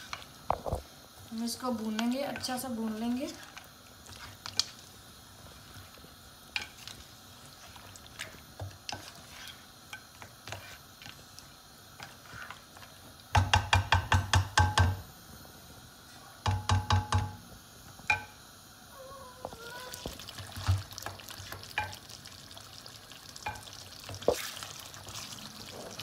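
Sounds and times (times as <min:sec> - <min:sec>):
wooden spoon scraping pot: 0:01.8 - 0:04.8, 0:06.6 - 0:11.2, 0:12.0 - 0:13.0
spoon knocking against metal pot: 0:13.3 - 0:15.0, 0:16.4 - 0:17.4, 0:18.1 - 0:18.3.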